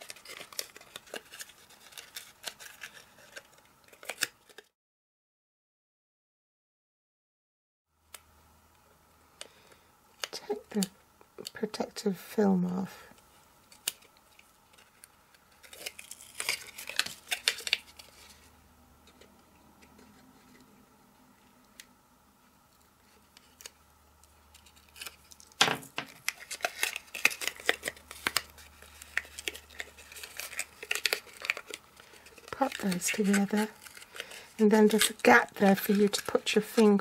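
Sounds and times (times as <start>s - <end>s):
card rustling: 0.0s - 4.7s, 13.7s - 18.5s, 22.7s - 37.0s
film peeling away: 0.0s - 4.7s, 13.6s - 18.5s, 22.8s - 37.0s.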